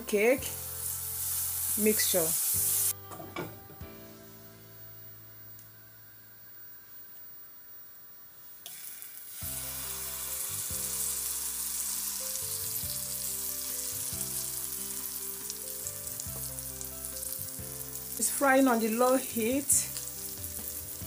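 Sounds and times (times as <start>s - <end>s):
batter sizzling in frying pan: 0.1s - 3.0s, 8.6s - 21.0s.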